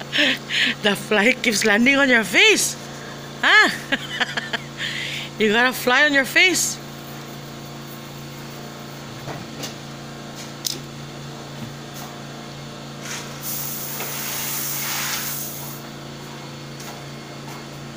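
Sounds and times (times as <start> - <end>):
steady low hum: 0.0 - 17.9.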